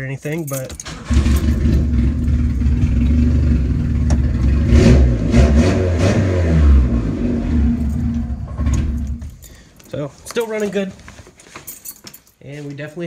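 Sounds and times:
car engine idling and revving: 0:00.9 - 0:09.4.

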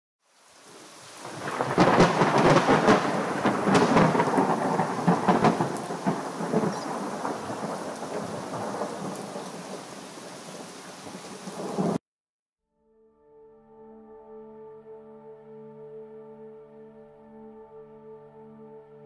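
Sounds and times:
steady rain: 0:00.2 - 0:12.0
thunder rumbling: 0:01.2 - 0:12.0
thunderclap with sharp crackling: 0:01.2 - 0:12.0.

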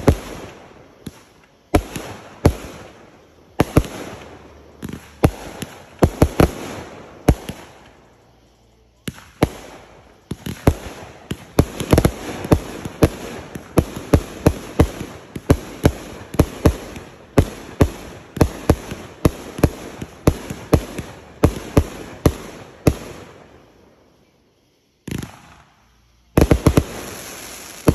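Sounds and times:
firework bangs: 0:00.0 - 0:23.8, 0:25.0 - 0:27.9.

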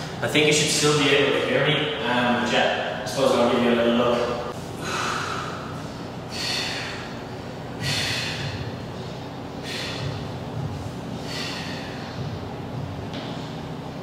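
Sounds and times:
steady low hum: 0:00.0 - 0:14.0
man breathing hard: 0:04.6 - 0:12.9.

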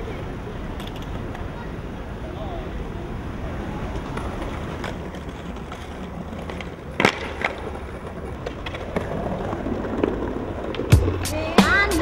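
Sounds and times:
skateboard wheels rolling: 0:00.0 - 0:12.0
skateboard clacks: 0:03.4 - 0:12.0.

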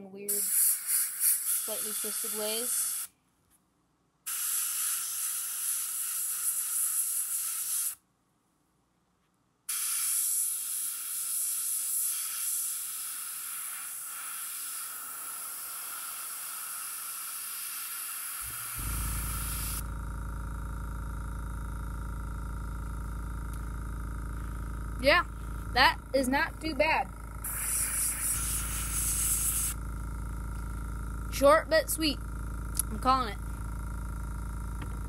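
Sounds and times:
airbrush spraying hiss: 0:00.3 - 0:03.1, 0:04.3 - 0:08.0, 0:09.7 - 0:19.9, 0:27.4 - 0:29.8.

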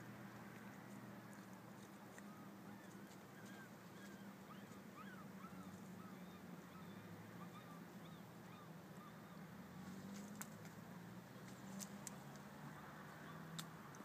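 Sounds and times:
faint bird chirps: 0:02.2 - 0:10.1.

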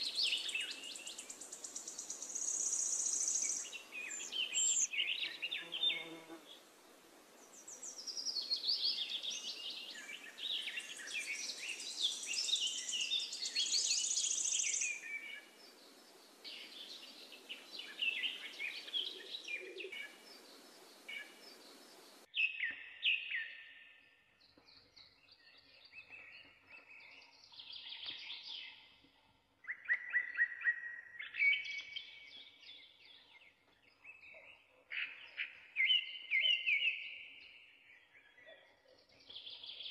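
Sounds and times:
birds chirping and singing: 0:00.0 - 0:06.2, 0:07.4 - 0:23.8, 0:24.4 - 0:39.9
background hiss: 0:00.0 - 0:22.3.

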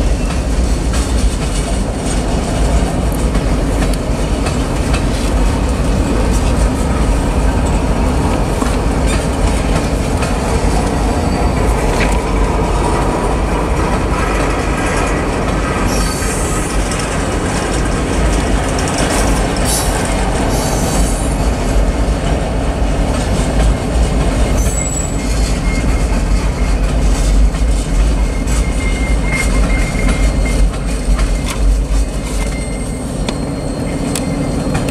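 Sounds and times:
freight train rumbling past: 0:00.0 - 0:34.9
wheel clatter over rails: 0:00.0 - 0:34.9
high-pitched wheel squeals: 0:24.5 - 0:26.7, 0:28.2 - 0:31.5, 0:32.3 - 0:34.9.

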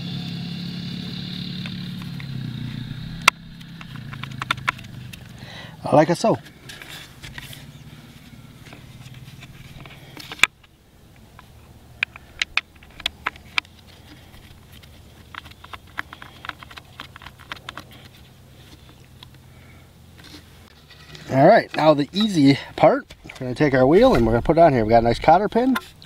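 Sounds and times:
low steady hum: 0:00.0 - 0:26.0
metal spikes clicking and tapping: 0:11.2 - 0:18.2.

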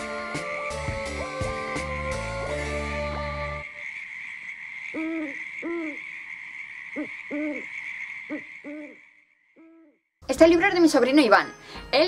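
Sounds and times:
owl hooting: 0:03.5 - 0:10.0.

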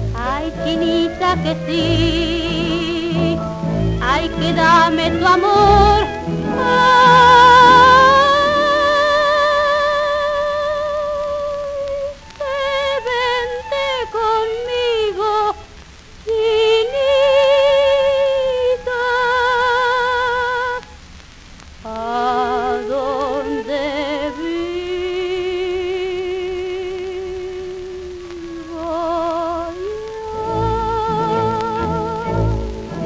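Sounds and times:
faint orchestral accompaniment: 0:00.0 - 0:09.6, 0:28.4 - 0:33.0
old record melody with vibrato: 0:00.0 - 0:33.0.

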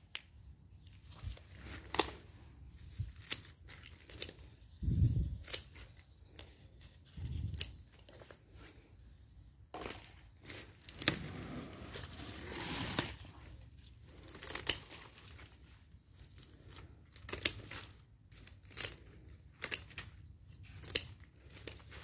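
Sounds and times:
pruning shears snipping stems: 0:07.2 - 0:08.1, 0:16.2 - 0:21.9
leaves rustling: 0:10.4 - 0:18.9.

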